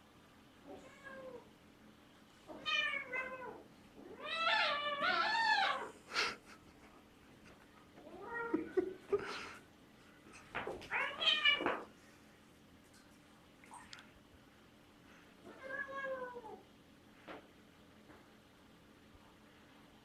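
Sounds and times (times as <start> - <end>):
cat meowing and yowling: 2.5 - 5.9.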